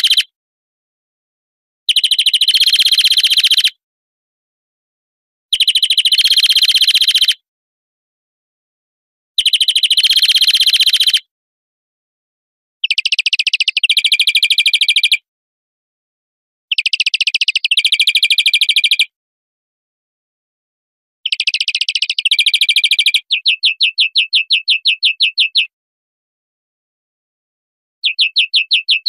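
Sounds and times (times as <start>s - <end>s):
greenfinch trilling song: 0.0s - 0.3s, 1.9s - 3.8s, 5.6s - 7.4s, 9.4s - 11.3s, 12.8s - 15.2s, 16.7s - 19.1s, 21.2s - 25.7s, 28.0s - 29.0s.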